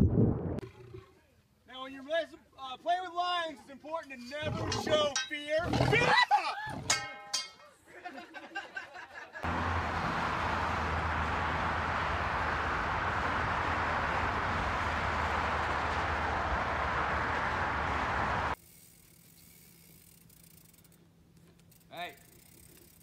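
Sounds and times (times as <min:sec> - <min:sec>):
low rumble: 0:00.0 - 0:00.6
highway traffic rushing: 0:09.4 - 0:18.6.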